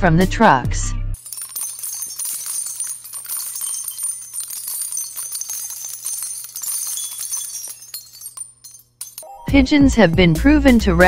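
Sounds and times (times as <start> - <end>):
small bells jingling: 1.2 - 9.5.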